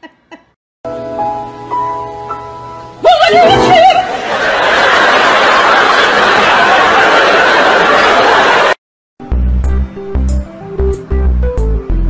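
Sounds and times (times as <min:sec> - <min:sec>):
crowd laughing: 0:03.3 - 0:08.8.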